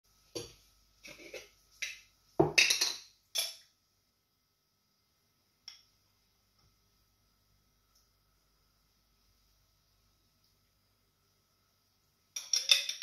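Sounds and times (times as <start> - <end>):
metal spoon clinking on glass jar: 12.4 - 13.0.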